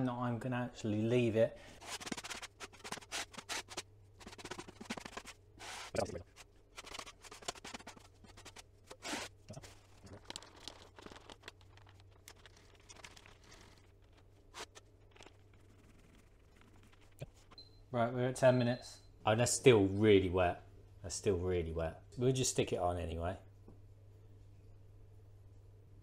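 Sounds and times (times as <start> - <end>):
trowel scraping adhesive on wood: 1.8 - 9.3.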